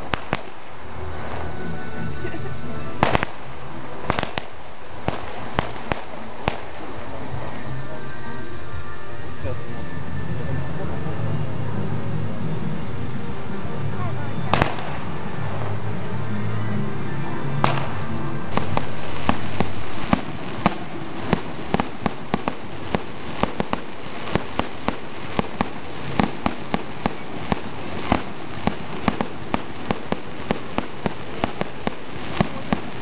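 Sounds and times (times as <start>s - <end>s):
firework cracks and pops: 0.0s - 1.5s, 3.0s - 7.7s, 14.5s - 15.2s, 17.6s - 33.0s
firework fountain hissing: 0.0s - 33.0s
steady low tone: 0.6s - 33.0s.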